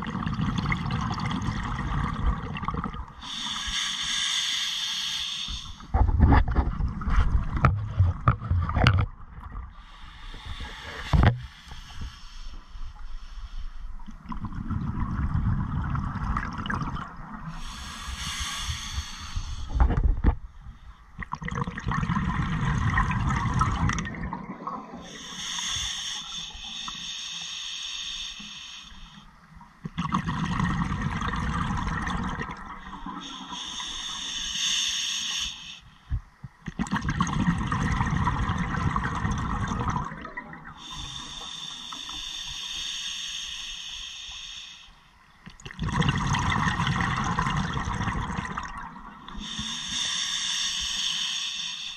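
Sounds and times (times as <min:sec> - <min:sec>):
bubbling exhaled air underwater: 0:00.0 - 0:03.4, 0:14.2 - 0:20.4, 0:21.2 - 0:25.8, 0:29.8 - 0:34.3, 0:36.6 - 0:42.0, 0:45.5 - 0:50.2
hissing regulator inhalations: 0:03.2 - 0:05.9, 0:09.8 - 0:14.0, 0:17.5 - 0:20.0, 0:25.0 - 0:29.3, 0:32.8 - 0:36.0, 0:40.8 - 0:45.1, 0:49.3 - 0:51.9.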